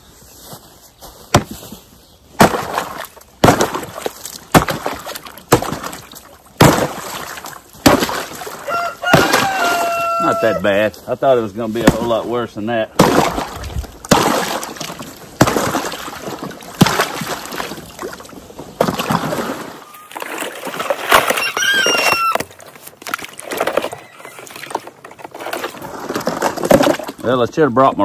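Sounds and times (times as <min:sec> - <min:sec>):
ice cracking when struck: 0:02.4 - 0:09.8, 0:13.0 - 0:19.7
ice chunks sloshing in water: 0:02.4 - 0:10.4, 0:13.0 - 0:27.6
brief high squeal: 0:21.4 - 0:22.4.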